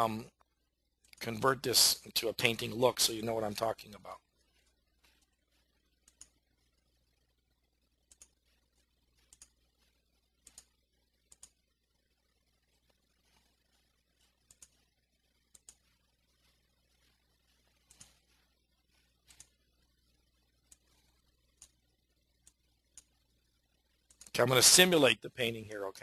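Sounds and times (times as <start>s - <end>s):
low steady hum: 0.0s - 26.0s
computer mouse clicks: 6.0s - 6.4s, 8.0s - 8.5s, 9.2s - 9.6s, 10.4s - 11.6s, 14.3s - 16.0s, 17.8s - 18.3s, 19.2s - 19.6s, 20.6s - 21.8s, 22.4s - 23.2s, 24.0s - 24.3s.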